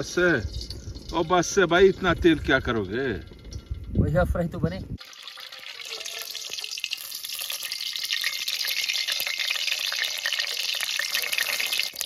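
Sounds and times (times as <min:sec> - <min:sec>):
eggs sizzling in hot oil: 0:05.0 - 0:12.0.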